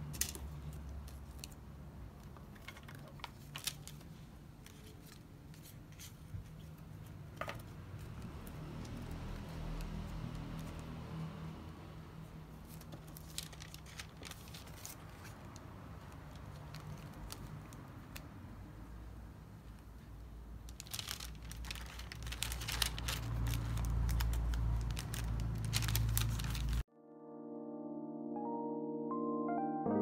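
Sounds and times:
wrapping paper crinkling: 2.5s - 5.2s, 12.6s - 18.2s, 20.6s - 26.9s
piano music: 26.9s - 30.0s.

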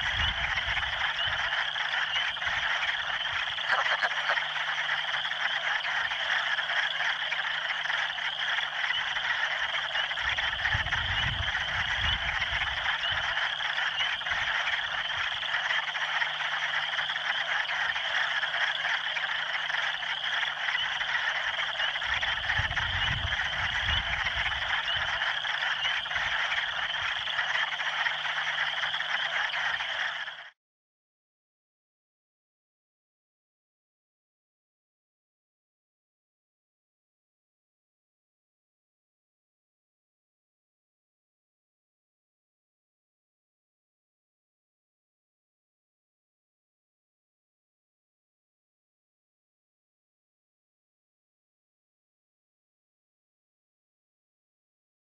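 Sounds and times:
frogs calling in chorus: 0.0s - 30.6s.

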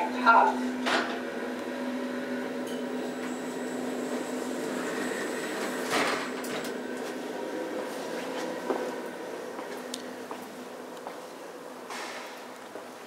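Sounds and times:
elevator humming: 0.0s - 11.9s
elevator doors sliding open: 0.7s - 9.1s.

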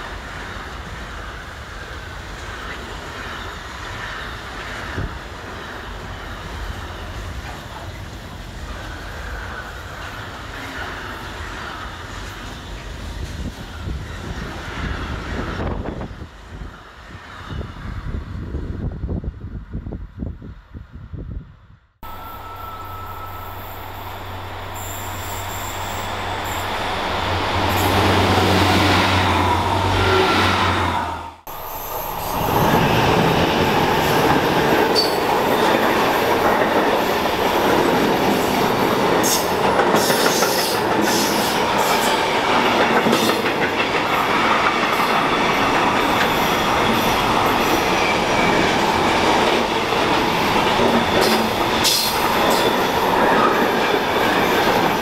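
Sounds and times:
freight train rolling past: 0.0s - 20.3s, 22.0s - 55.0s
rail vehicle humming: 0.0s - 55.0s
wheels clicking on rails: 31.5s - 55.0s.

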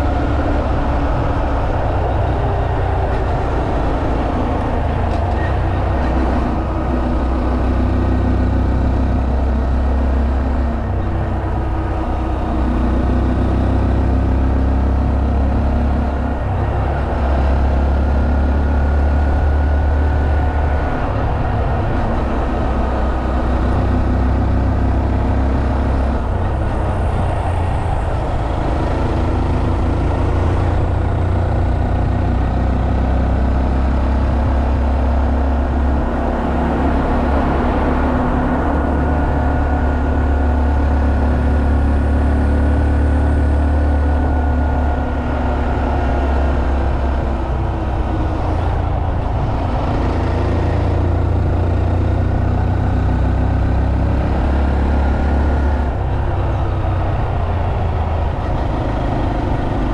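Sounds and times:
wind rush: 0.0s - 7.9s, 25.6s - 32.5s, 44.2s - 52.5s.

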